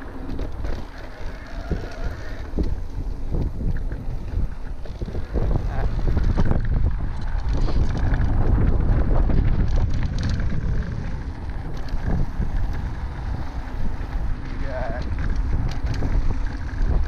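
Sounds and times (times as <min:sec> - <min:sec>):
bike clicks and rattles: 0:00.0 - 0:17.0
bike tyres on dirt: 0:00.0 - 0:17.0
wind buffeting microphone: 0:00.0 - 0:17.0.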